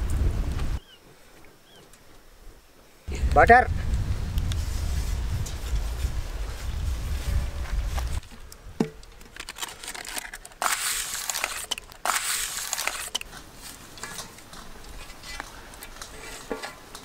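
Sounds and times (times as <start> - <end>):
low rumble: 3.1 - 8.2
paper wrapper crinkling on metal pan: 9.2 - 17.0.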